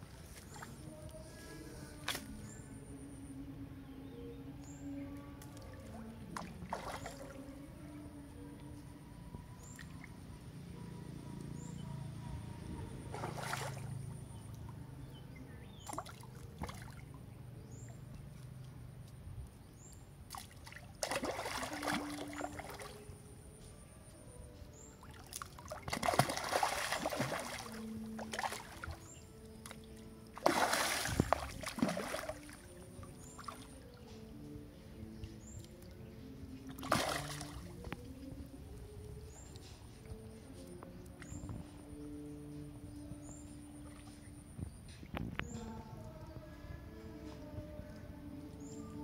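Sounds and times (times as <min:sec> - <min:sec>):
water sloshing: 0:00.0 - 0:01.3, 0:05.1 - 0:08.8, 0:12.7 - 0:14.8, 0:15.6 - 0:18.8, 0:20.2 - 0:23.3, 0:24.8 - 0:41.9
fish splashing in pond: 0:05.4 - 0:07.4, 0:13.1 - 0:14.6, 0:15.7 - 0:17.1, 0:20.3 - 0:23.1, 0:25.0 - 0:33.8, 0:36.6 - 0:37.8.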